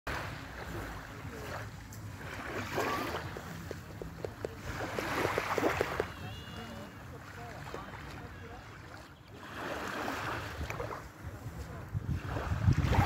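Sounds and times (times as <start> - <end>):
small waves lapping at shore: 0.1 - 13.0
wind rumble on microphone: 10.2 - 13.0.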